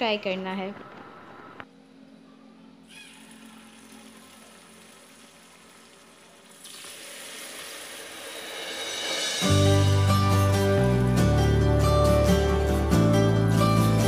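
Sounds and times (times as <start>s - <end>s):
hot oil sizzling in a frying pan: 3.2s - 9.5s.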